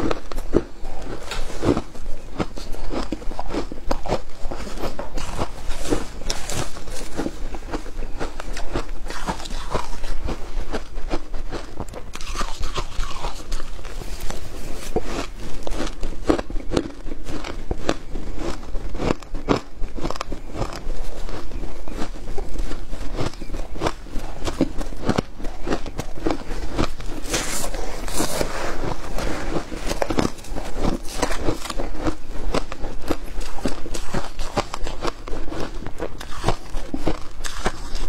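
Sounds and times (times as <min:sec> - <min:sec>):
shaved ice crunching: 0:12.1 - 0:16.0, 0:24.4 - 0:38.0.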